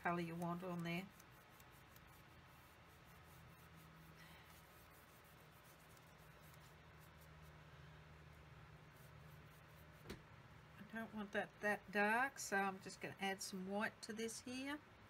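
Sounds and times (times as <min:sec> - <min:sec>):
faint soft scratching: 0:00.0 - 0:10.2
low electrical hum: 0:00.0 - 0:15.0.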